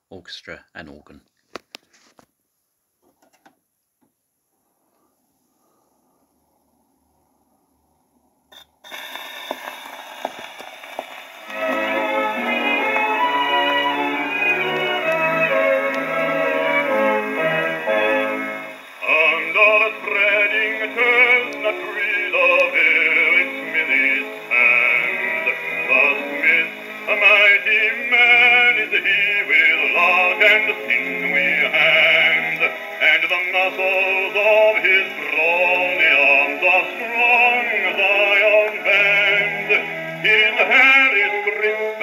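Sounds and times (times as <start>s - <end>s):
orchestral accompaniment: 11.5s - 18.8s
bass voice singing a ballad: 19.0s - 42.0s.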